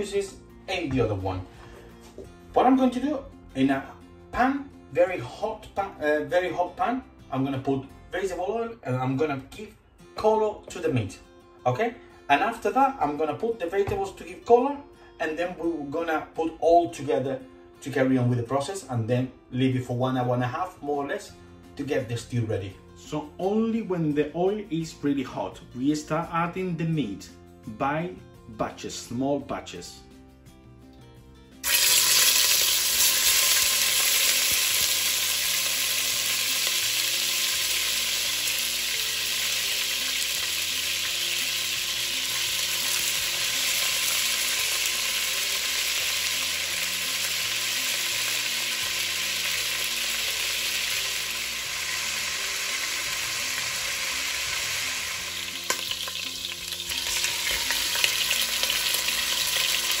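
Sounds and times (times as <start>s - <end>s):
meat sizzling in oil: 31.6s - 60.0s.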